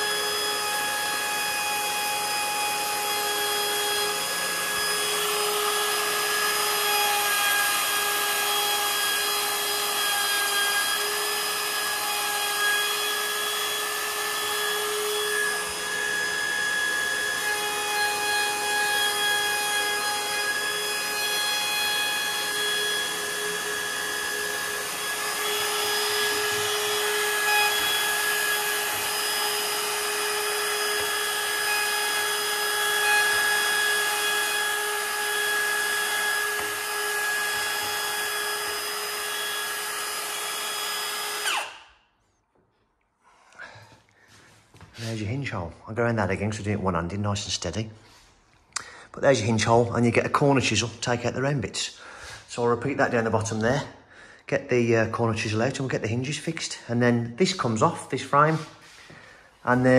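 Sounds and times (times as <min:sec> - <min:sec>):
router cutting wood hiss: 0:00.0 - 0:41.8
router motor whining: 0:00.0 - 0:41.9.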